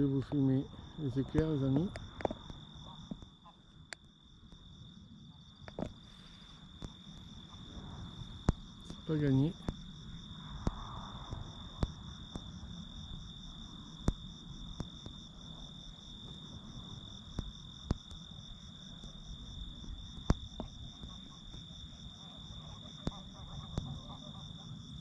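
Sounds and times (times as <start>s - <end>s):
crickets trilling: 0.0s - 25.0s.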